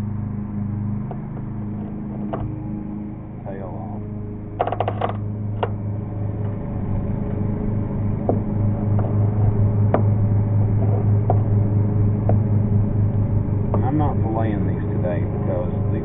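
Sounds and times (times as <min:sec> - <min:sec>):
lawn mower engine running: 0:00.0 - 0:16.0.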